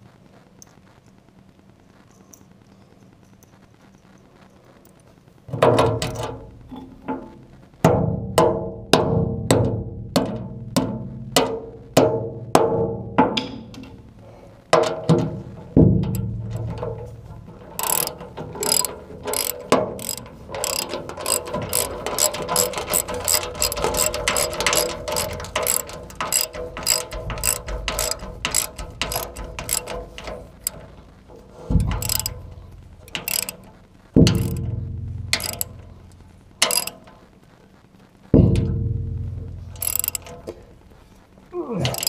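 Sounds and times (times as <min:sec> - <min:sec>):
heavy knocks: 0:14.8 - 0:33.3
ratchet wrench clicking: 0:17.7 - 0:34.7, 0:35.3 - 0:35.9, 0:36.6 - 0:37.2, 0:39.7 - 0:40.6.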